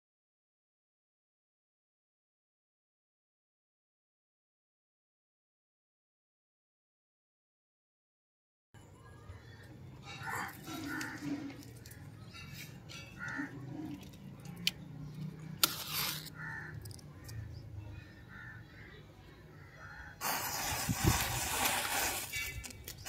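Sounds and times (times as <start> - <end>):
matches flaring with hiss: 20.2 - 22.7.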